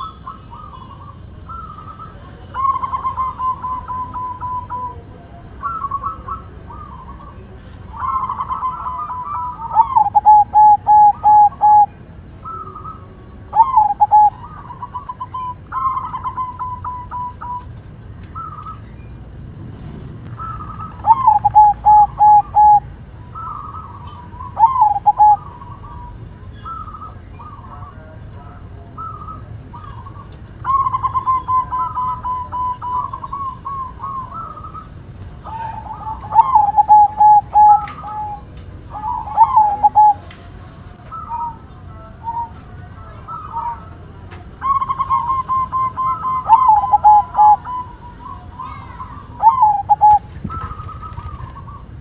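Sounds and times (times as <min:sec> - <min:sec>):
dove cooing: 0:00.0 - 0:52.0.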